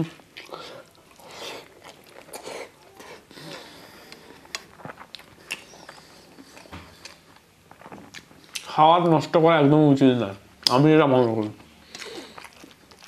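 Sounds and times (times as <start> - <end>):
person chewing food: 0.2 - 8.8, 10.6 - 13.0
wet mouth smacks and clicks: 5.4 - 6.0.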